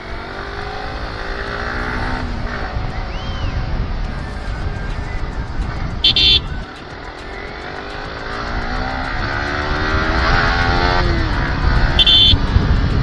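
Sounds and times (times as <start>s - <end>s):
motorcycle engine accelerating: 0.0s - 13.0s
wind rumbling on microphone: 0.0s - 13.0s
horn beeping: 5.9s - 12.8s.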